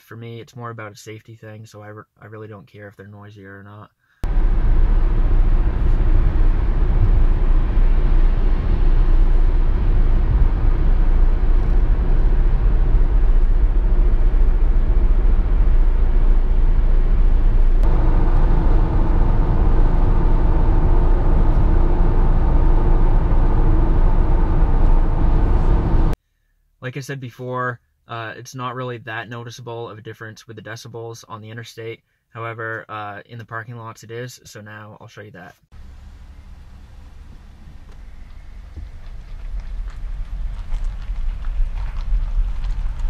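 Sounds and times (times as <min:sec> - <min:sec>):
studded tire hum: 0:04.2 - 0:26.2, 0:35.7 - 0:43.0
tire and wind noise in car: 0:04.2 - 0:26.2, 0:35.7 - 0:43.0.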